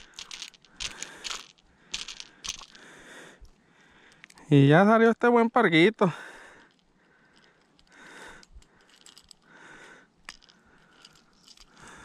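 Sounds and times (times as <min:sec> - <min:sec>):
soft breaths: 0:00.0 - 0:04.5, 0:06.1 - 0:12.0.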